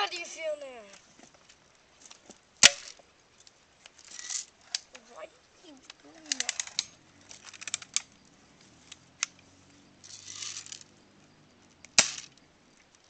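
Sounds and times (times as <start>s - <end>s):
brief rustle: 5.8s - 9.4s
rifle clicks and rattles: 5.9s - 8.1s.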